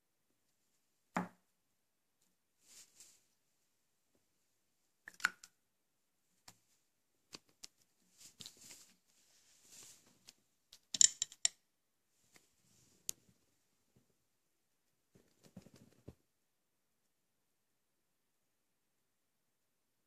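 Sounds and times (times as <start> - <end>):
soft rustling: 2.6 - 3.6, 6.3 - 10.5.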